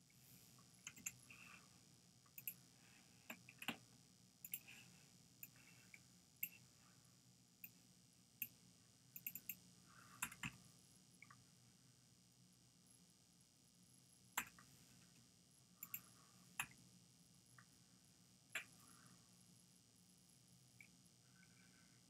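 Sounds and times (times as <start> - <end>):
computer mouse clicks: 0.8 - 1.5, 2.3 - 2.6, 3.3 - 3.8, 4.4 - 4.8, 5.4 - 6.6, 9.2 - 10.6, 14.4 - 14.7, 15.8 - 16.8, 18.5 - 18.9.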